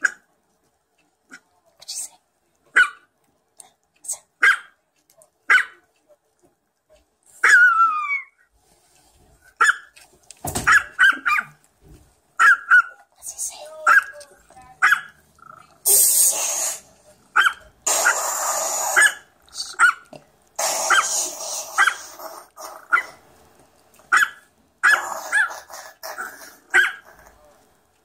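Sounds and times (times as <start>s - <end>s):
small dog yipping: 2.7s - 3.1s, 4.4s - 4.8s, 5.5s - 5.8s, 7.4s - 8.4s, 9.6s - 10.0s, 10.6s - 11.6s, 12.4s - 13.0s, 14.8s - 15.2s, 17.4s - 20.1s, 20.9s - 21.1s, 21.7s - 22.1s, 22.9s - 23.2s, 24.1s - 27.1s
dog whining cry: 7.4s - 8.4s, 17.4s - 20.1s, 20.8s - 23.2s, 24.2s - 27.2s.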